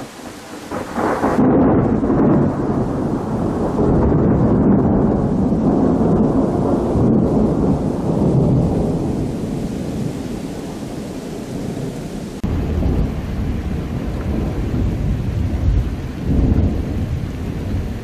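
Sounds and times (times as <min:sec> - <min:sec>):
thunder rumbling: 0:00.0 - 0:18.0.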